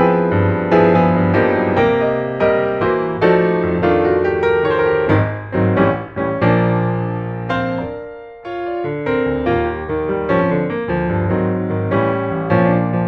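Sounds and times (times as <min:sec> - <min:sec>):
slow piano piece: 0:00.0 - 0:13.0.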